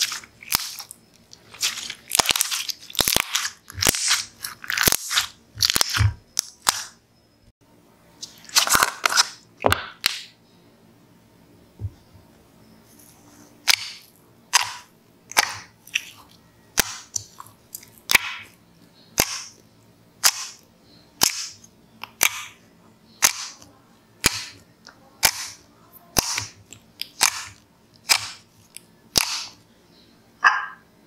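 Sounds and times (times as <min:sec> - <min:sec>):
slime popping and squishing: 0:00.0 - 0:06.9, 0:25.2 - 0:28.4, 0:29.1 - 0:29.6.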